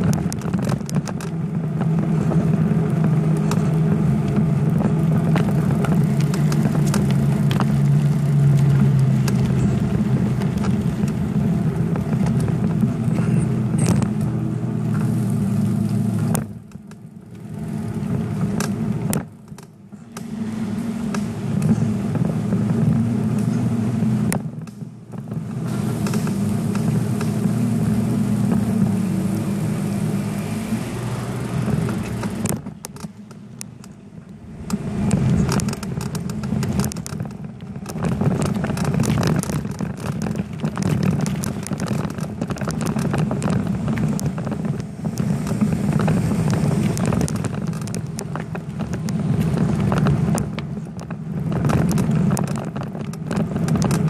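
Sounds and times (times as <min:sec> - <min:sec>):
bicycle riding rumble: 0:00.0 - 0:54.0
bike rattles and clicks: 0:00.0 - 0:54.0.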